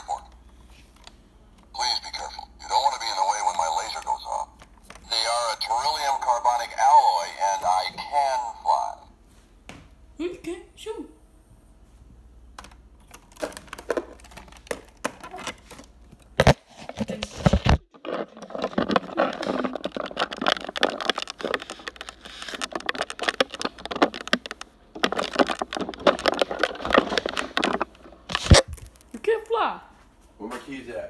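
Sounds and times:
crackling rustling on microphone: 1.7 - 9.1, 13.1 - 29.2.

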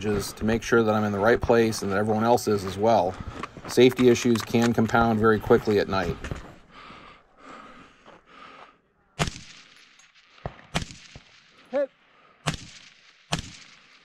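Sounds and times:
rifle shots: 9.2 - 14.0.

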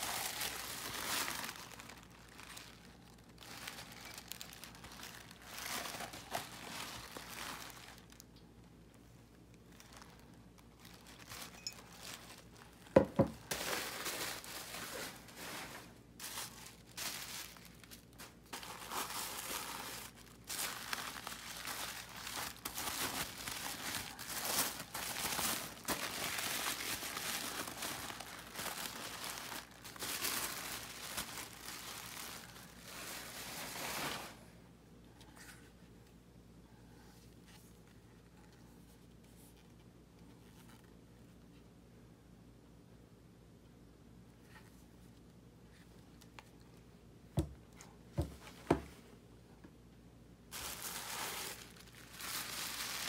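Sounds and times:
wrapping paper crinkling: 0.0 - 34.5, 50.5 - 53.0.

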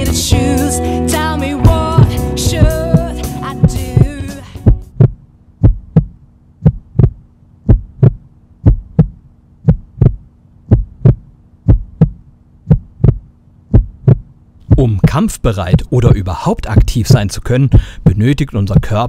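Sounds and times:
faint steady hum: 0.0 - 19.0
heartbeat thumps: 1.6 - 15.9.

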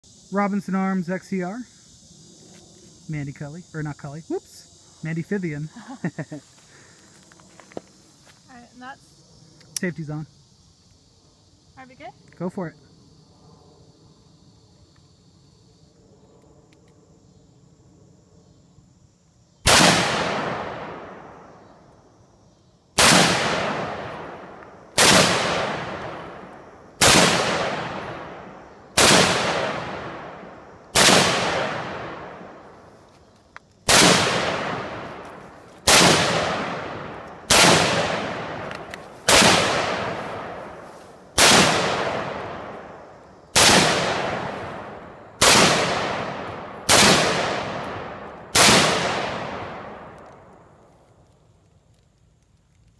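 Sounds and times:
rifle shots: 19.7 - 21.2, 23.0 - 26.4, 27.0 - 32.5, 33.9 - 40.8, 41.4 - 42.9, 43.5 - 50.2.

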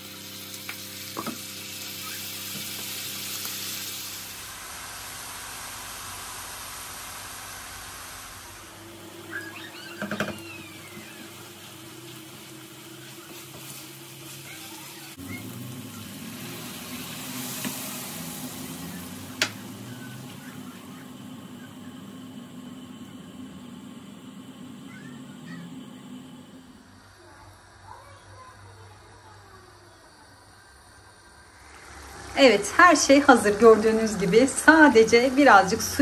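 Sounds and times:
food sizzling in a frying pan: 0.0 - 36.0
steady hum: 0.0 - 36.0.

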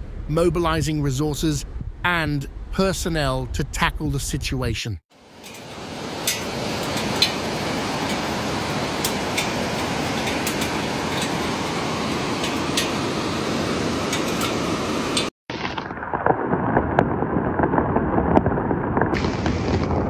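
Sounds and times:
floodwater rushing: 5.2 - 19.8.

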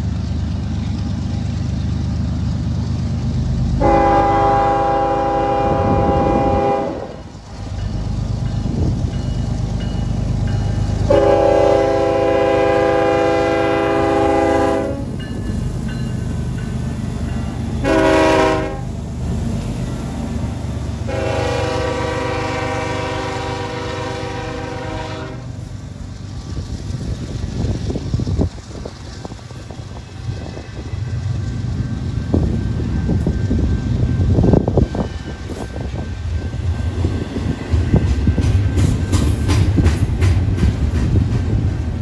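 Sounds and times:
diesel locomotive rumble: 0.0 - 42.0
locomotive air horn blasts: 3.8 - 7.3, 11.1 - 15.1, 17.8 - 18.9, 21.1 - 25.6.

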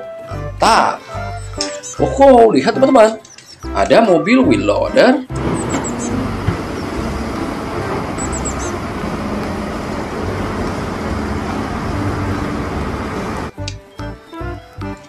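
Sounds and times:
diesel engine under load: 5.3 - 13.6.

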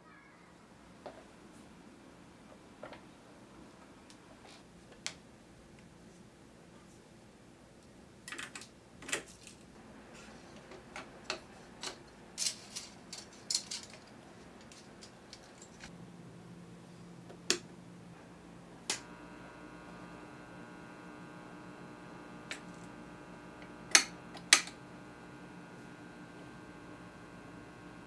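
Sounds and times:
low steady hum: 9.3 - 28.0.

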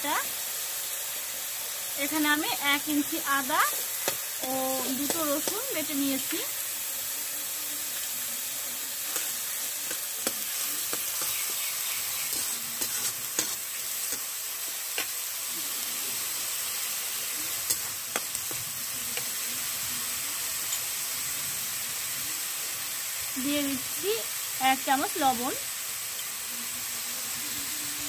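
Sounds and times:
onion sizzling in hot oil: 0.0 - 28.0
metal spatula scraping pan: 9.1 - 14.2.

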